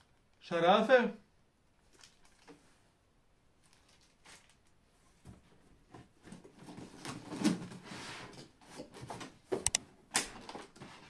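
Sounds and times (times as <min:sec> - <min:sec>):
cardboard and packing rustling: 0:03.6 - 0:09.6
sharp clicks and knocks: 0:09.6 - 0:09.8.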